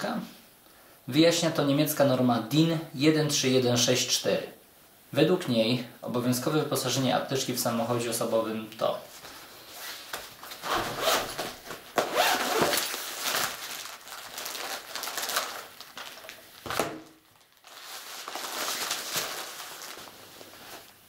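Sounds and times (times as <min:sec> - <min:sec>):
fabric pouch rustling: 0:09.2 - 0:16.4, 0:17.4 - 0:21.0
plastic wrappers crinkling: 0:10.1 - 0:21.0.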